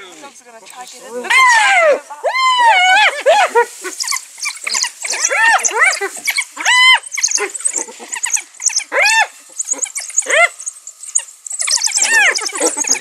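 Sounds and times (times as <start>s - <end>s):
animals squealing cries: 1.1s - 13.0s
high thin chirps: 3.1s - 13.0s.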